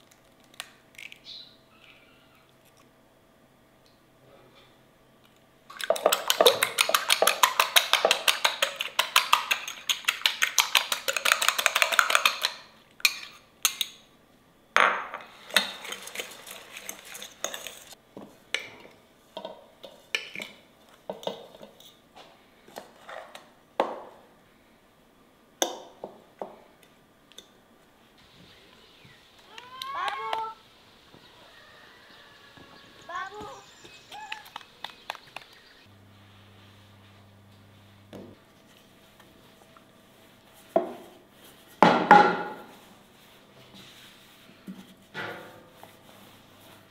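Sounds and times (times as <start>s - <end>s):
utensil beating against bowl: 5.7s - 13.9s.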